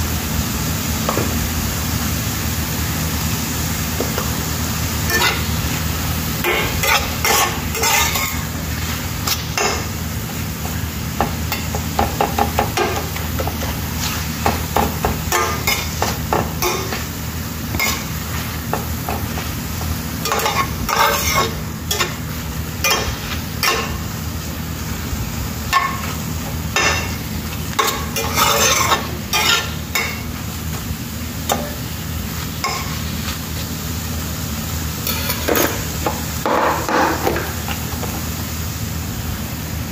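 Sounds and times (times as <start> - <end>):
light sizzle of frying: 0.0 - 39.9
spatula scraping frying pan: 6.4 - 9.9, 15.3 - 24.1, 27.8 - 30.3.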